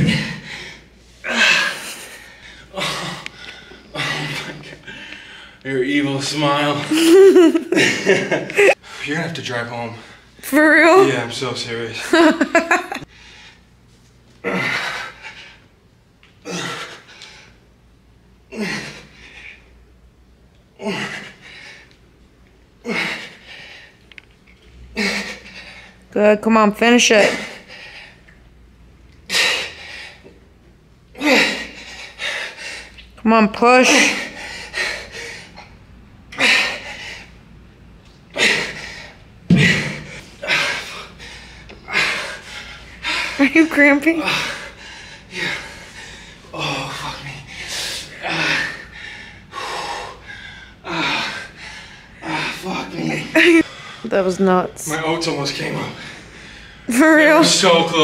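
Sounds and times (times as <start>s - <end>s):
man breathing hard: 0.0s - 5.6s, 29.3s - 30.4s, 31.1s - 33.0s, 38.3s - 43.4s, 44.2s - 54.1s, 55.9s - 56.9s.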